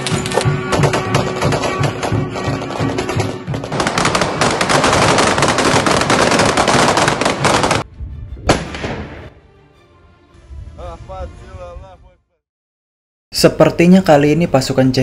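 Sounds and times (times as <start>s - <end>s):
automatic rifle fire: 0.3s - 7.8s.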